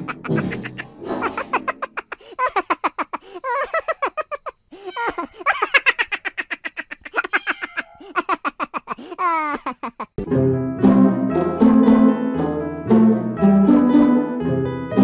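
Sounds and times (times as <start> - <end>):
person laughing high-pitched: 0.0 - 10.3.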